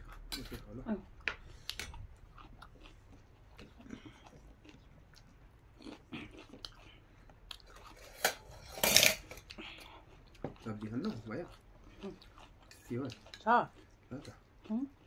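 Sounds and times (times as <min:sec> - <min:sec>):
person chewing: 0:00.0 - 0:15.0.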